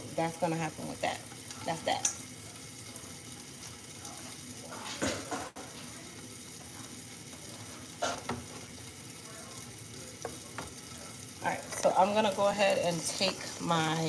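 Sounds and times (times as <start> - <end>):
chicken sizzling in a pan: 0.0 - 14.0
kitchen utensils clattering: 4.7 - 5.6.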